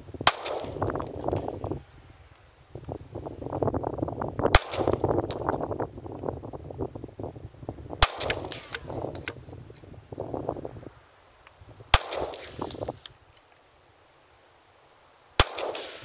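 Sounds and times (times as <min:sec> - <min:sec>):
wind noise on microphone: 0:00.0 - 0:13.4
pistol shots: 0:00.2 - 0:01.6, 0:04.6 - 0:05.2, 0:08.0 - 0:09.2, 0:11.9 - 0:12.9, 0:15.4 - 0:16.0.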